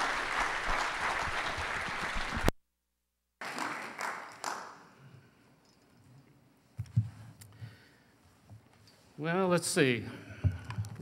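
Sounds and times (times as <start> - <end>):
congregation applauding: 0.0 - 2.5, 3.4 - 4.9.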